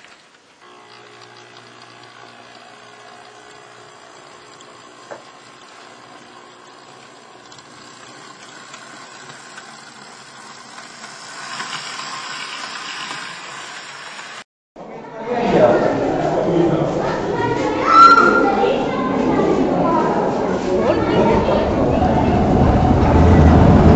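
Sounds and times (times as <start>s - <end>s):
model tram wheels rumbling: 5.0s - 14.4s.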